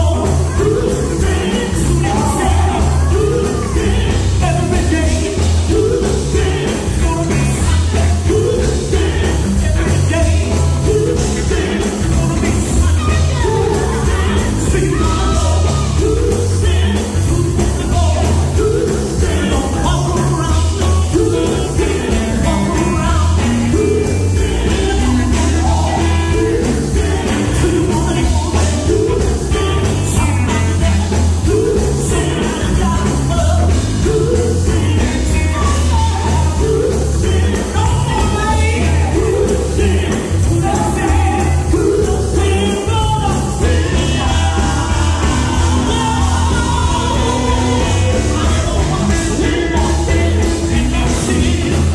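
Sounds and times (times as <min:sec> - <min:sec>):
woman singing lead vocal: 0:00.0 - 0:20.5
electric guitar: 0:00.0 - 0:51.9
heavy bass line: 0:00.0 - 0:51.9.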